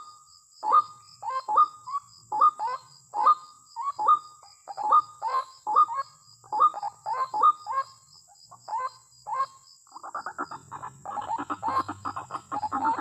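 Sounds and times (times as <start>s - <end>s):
waterhen calling: 10.3s - 13.0s.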